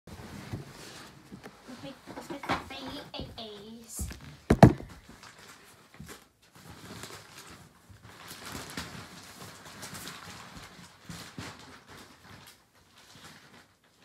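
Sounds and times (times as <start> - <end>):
crinkling and rustling: 0.1 - 14.0
loud knocks near microphone: 4.0 - 5.0.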